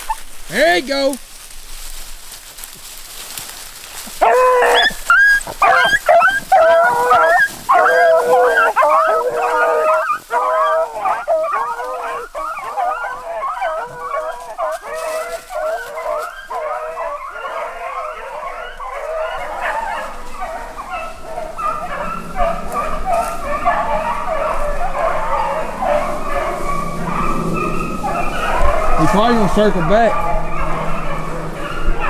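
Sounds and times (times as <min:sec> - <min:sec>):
dogs baying and yelping: 0:00.0 - 0:00.3, 0:04.0 - 0:32.0.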